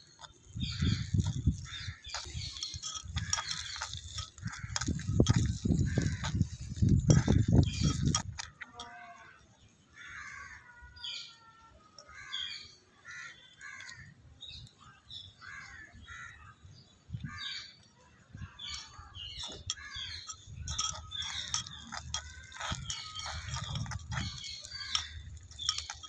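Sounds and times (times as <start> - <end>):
spoon clicking against clay pot: 0.2 - 8.9, 18.7 - 26.0.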